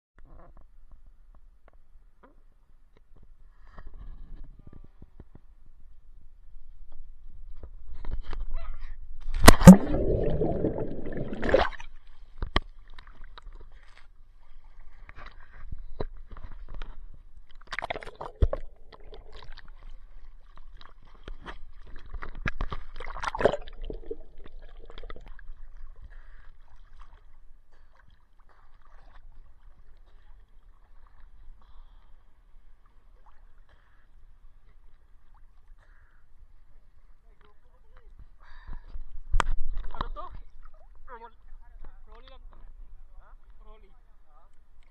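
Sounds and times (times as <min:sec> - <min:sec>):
water splashing: 0:09.4 - 0:12.2, 0:17.6 - 0:25.8
lapping water: 0:09.5 - 0:12.0, 0:17.6 - 0:36.3.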